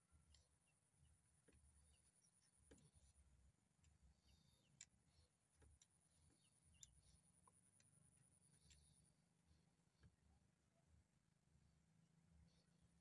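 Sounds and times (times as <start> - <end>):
faint ticks: 1.4 - 9.2.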